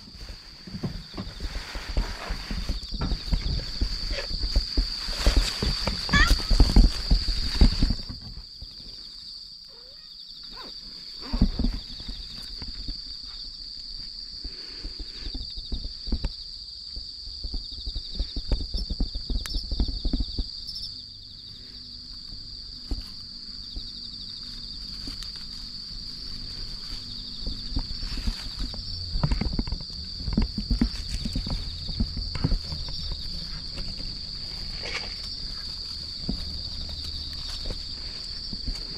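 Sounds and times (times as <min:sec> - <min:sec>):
cats rustling in leaves: 0:00.0 - 0:08.2, 0:24.2 - 0:38.9
insects chirring: 0:00.0 - 0:38.9.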